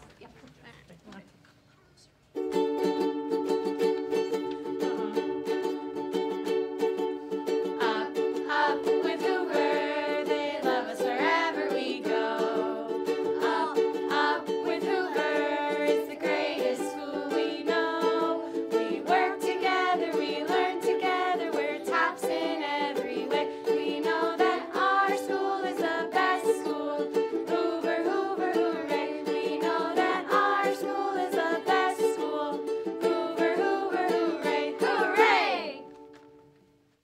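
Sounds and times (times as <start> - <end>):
ukuleles strumming: 2.2 - 37.0
children and adults singing: 7.4 - 35.9.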